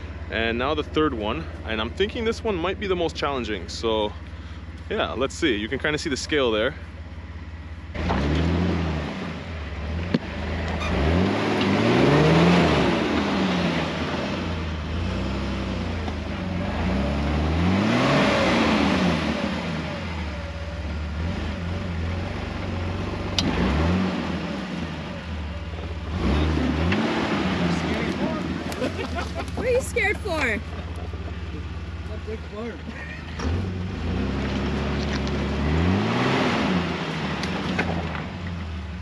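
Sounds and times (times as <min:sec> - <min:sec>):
engine revving under load: 0:07.9 - 0:38.8.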